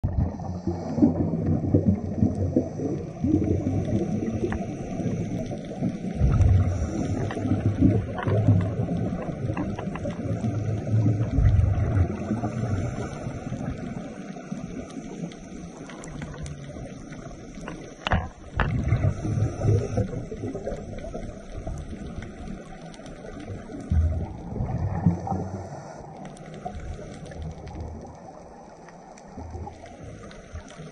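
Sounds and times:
muffled underwater noise: 0:00.0 - 0:30.9
rumbling surges of bubbles: 0:00.0 - 0:30.9.

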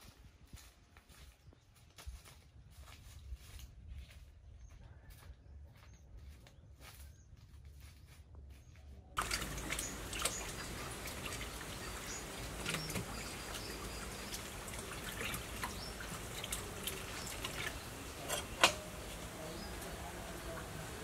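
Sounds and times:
water sloshing in metal bowl: 0:09.2 - 0:21.0.

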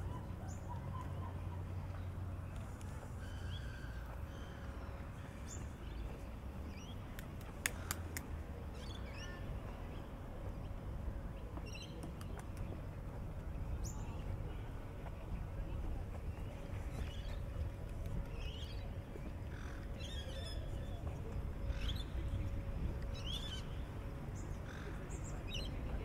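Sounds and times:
low outdoor rumble: 0:00.0 - 0:26.0.

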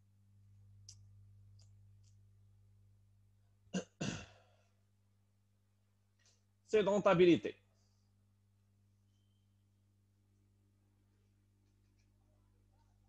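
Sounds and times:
low electrical hum: 0:00.0 - 0:13.0
man clearing throat: 0:03.7 - 0:04.4.

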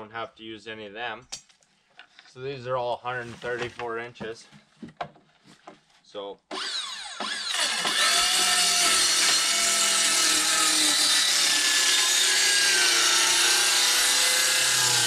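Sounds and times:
circular saw cutting wood: 0:06.5 - 0:15.0.

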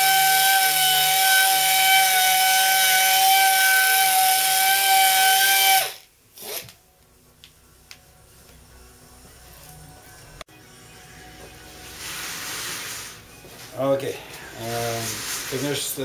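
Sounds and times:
air hiss: 0:11.8 - 0:13.4, 0:14.4 - 0:16.0.

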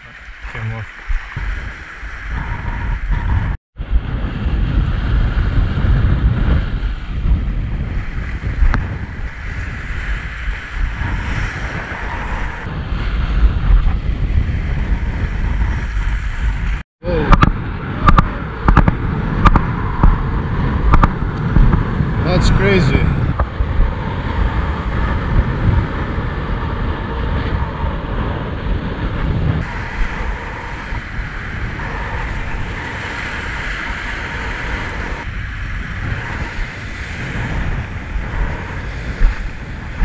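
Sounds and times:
wind buffeting microphone: 0:00.0 - 0:40.0
sea waves washing against rocks: 0:28.1 - 0:40.0.

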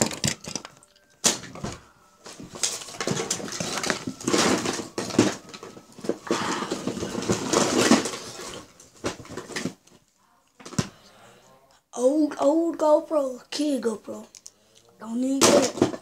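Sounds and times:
small hard objects clattering: 0:00.0 - 0:10.0.

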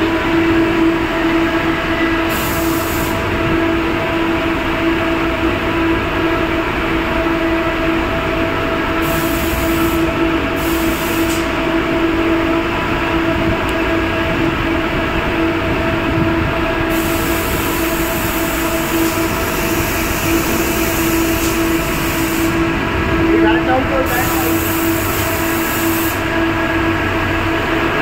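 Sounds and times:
machinery drone: 0:00.0 - 0:28.0
spray gun hissing: 0:16.9 - 0:22.7, 0:24.0 - 0:26.2.

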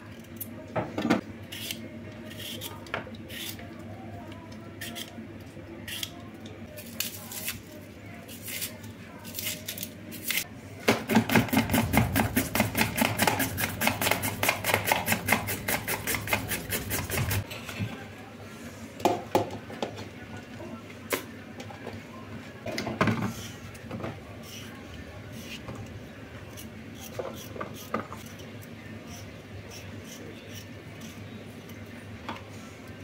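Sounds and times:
carrot grating on plastic grater: 0:11.6 - 0:17.4.

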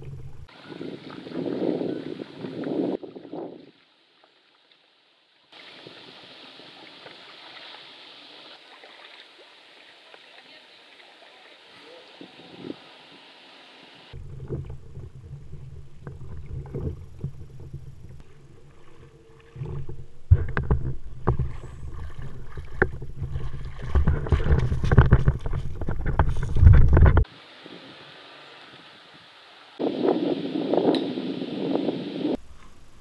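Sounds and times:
kayak paddle splashing water: 0:00.0 - 0:29.2
kayak knocking on gravel shore: 0:19.6 - 0:27.3.

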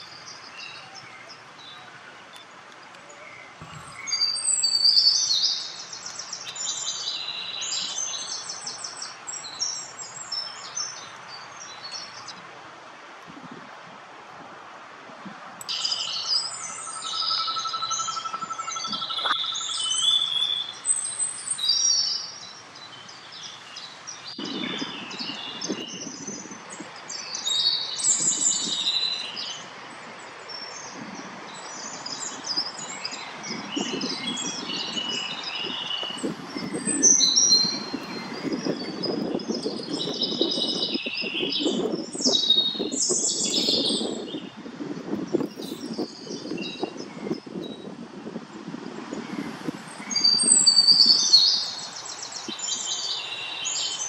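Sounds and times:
songbirds chirping and singing: 0:00.0 - 0:12.4, 0:15.6 - 0:47.8, 0:49.0 - 0:54.0
creek rushing: 0:48.5 - 0:54.0.

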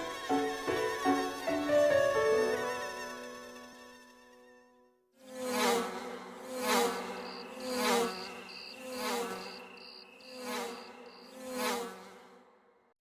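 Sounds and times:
flying insects wing buzz: 0:00.0 - 0:04.3, 0:05.2 - 0:12.6
music: 0:00.0 - 0:05.0
cricket chirping: 0:07.0 - 0:11.5.

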